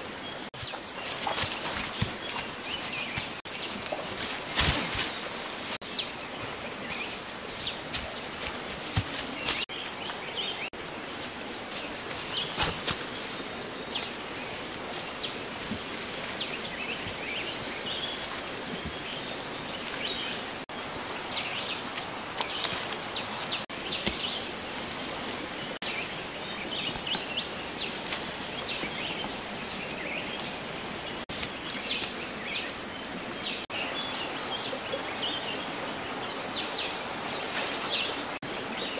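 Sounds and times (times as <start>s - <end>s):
birds chirping: 0.0s - 38.9s
tree branches knocking and rustling: 0.6s - 5.8s, 6.5s - 9.7s, 11.6s - 21.2s.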